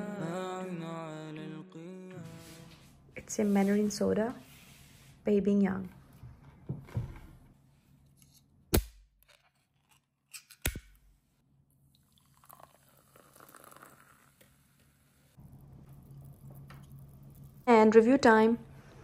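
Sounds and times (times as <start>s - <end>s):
soda pouring and fizzing: 12.0s - 17.7s.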